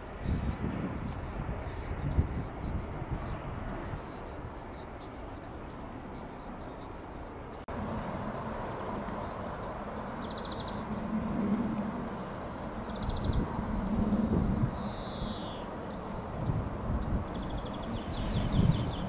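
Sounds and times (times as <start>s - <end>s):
small birds chirping: 0.2s - 11.1s, 12.8s - 13.5s, 14.4s - 19.0s
bird trill: 14.4s - 16.0s.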